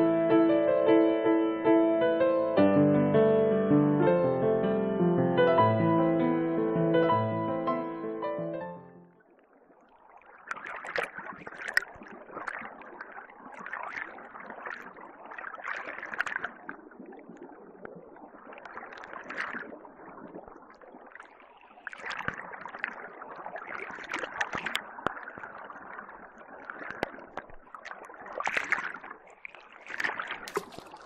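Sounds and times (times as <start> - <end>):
water gurgling and trickling: 9.0 - 31.0
small splashes and clicks: 9.1 - 31.0.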